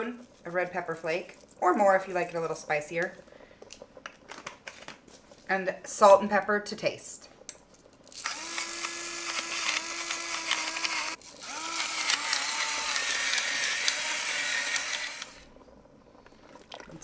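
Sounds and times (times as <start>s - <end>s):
electric grinder whirring: 8.1s - 15.5s.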